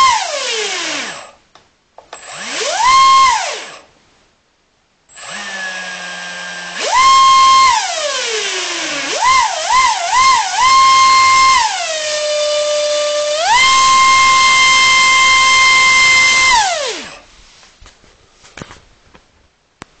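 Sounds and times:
electric motor propeller whine: 5.2 - 17.2.

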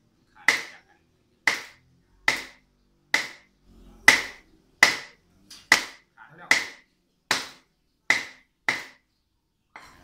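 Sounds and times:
cleaver chopping meat on wood: 0.4 - 0.8, 1.5 - 2.6, 3.2 - 3.5, 4.1 - 9.0.

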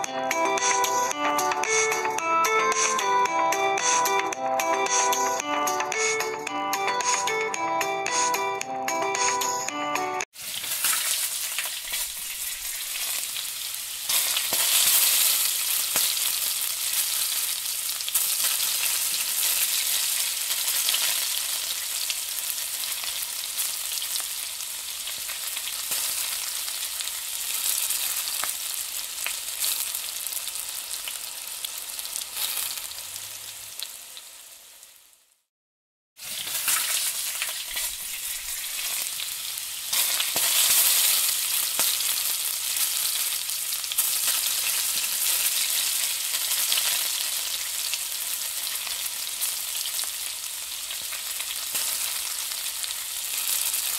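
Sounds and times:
food sizzling in hot oil: 10.3 - 35.5, 36.2 - 53.9
metal spatula stirring: 10.6 - 13.2.

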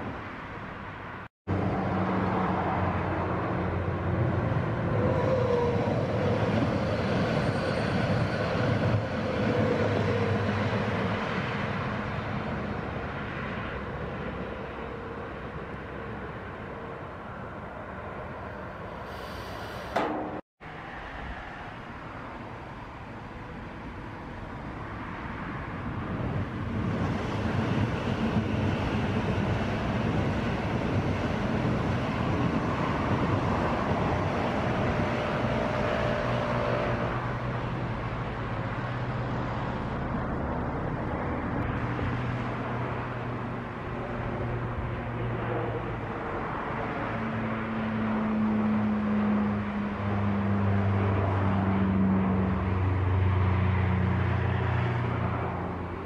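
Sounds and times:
road traffic: 0.0 - 56.0
train whine: 1.5 - 12.7.

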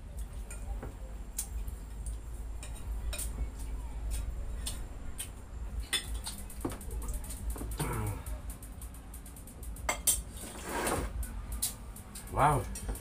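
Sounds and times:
steady low hum: 0.0 - 13.0
dishes clicking and tapping: 0.2 - 8.1, 9.9 - 10.4.

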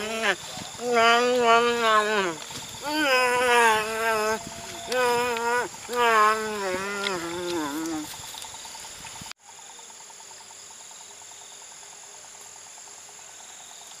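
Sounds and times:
person's wavering voiced sound: 0.0 - 8.1
crickets chirring: 0.0 - 14.0.

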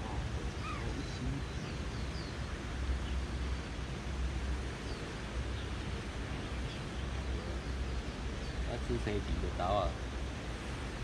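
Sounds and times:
faint bird chirps: 0.0 - 3.3
even hiss: 0.0 - 11.0.

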